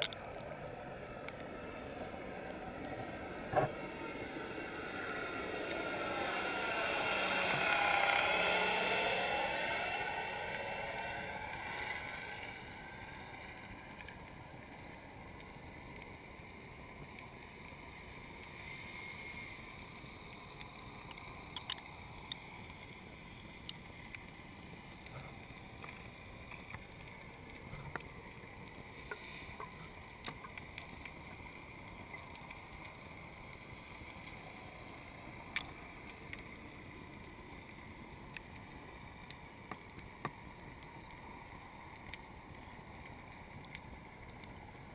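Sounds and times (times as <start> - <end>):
sharp underwater clicks: 0.0 - 0.5, 20.2 - 24.4, 25.0 - 44.6
faint underwater hiss: 0.0 - 44.9.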